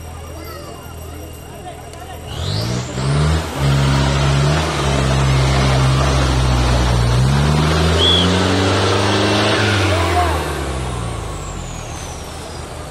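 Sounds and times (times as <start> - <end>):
engine revving hard: 2.3 - 12.9
short high chirp: 7.9 - 8.6.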